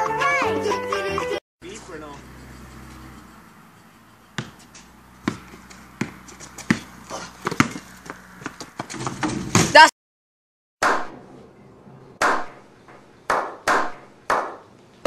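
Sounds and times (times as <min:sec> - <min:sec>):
basketball bouncing on concrete: 0:04.3 - 0:09.8.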